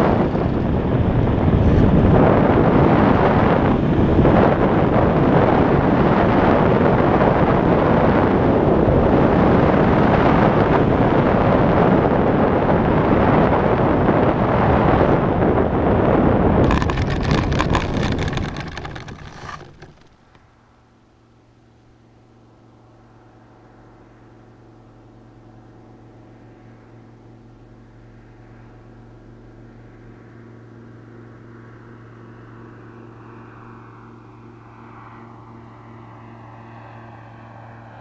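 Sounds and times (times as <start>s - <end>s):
heavy wind noise: 0.0s - 20.5s
model airplane engine: 0.0s - 38.0s
wheels rattling over ploughed ground: 16.6s - 20.4s.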